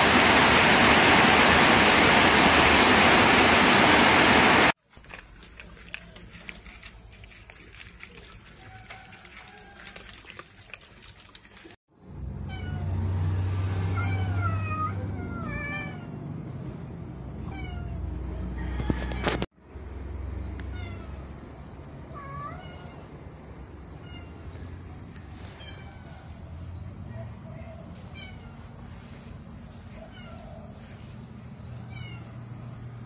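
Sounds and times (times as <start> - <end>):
cats meowing: 12.5 - 13.0, 13.9 - 16.2, 17.4 - 18.3, 20.6 - 21.3, 22.0 - 23.2, 23.9 - 24.7, 25.3 - 26.4, 27.7 - 29.0, 29.8 - 30.9, 31.8 - 32.4.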